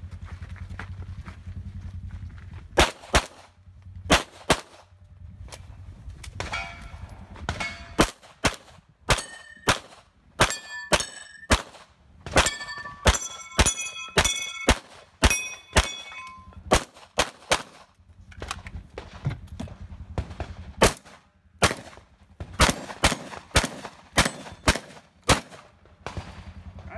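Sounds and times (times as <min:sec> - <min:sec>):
rapid gunshots: 0:02.8 - 0:03.5, 0:04.1 - 0:04.9, 0:16.7 - 0:17.9, 0:20.1 - 0:26.9
steel targets clanging: 0:06.4 - 0:08.2, 0:09.1 - 0:09.8, 0:10.4 - 0:11.6, 0:12.3 - 0:16.7.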